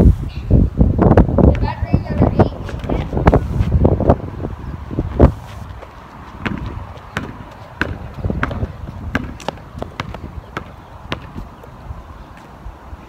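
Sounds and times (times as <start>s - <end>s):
basketball bouncing on asphalt: 5.7s - 11.8s.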